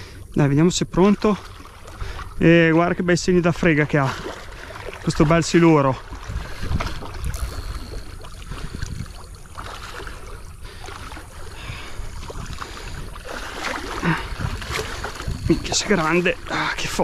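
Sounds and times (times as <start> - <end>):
steady low rumble: 7.3 - 9.6.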